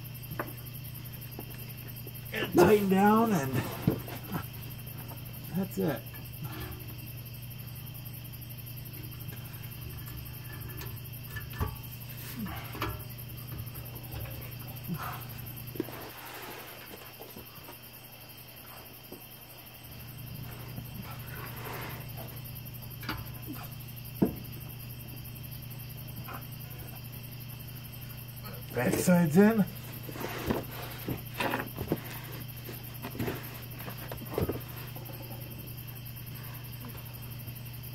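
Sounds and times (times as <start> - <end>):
low steady hum: 0.0 - 16.6
crickets chirping: 0.0 - 37.9.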